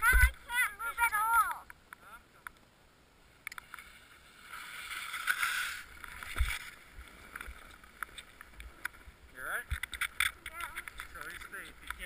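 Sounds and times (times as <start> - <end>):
skis hissing through snow: 3.8 - 6.0.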